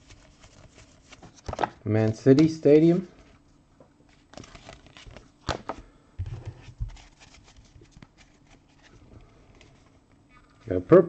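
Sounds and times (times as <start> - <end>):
trading cards rustling: 4.1 - 9.9.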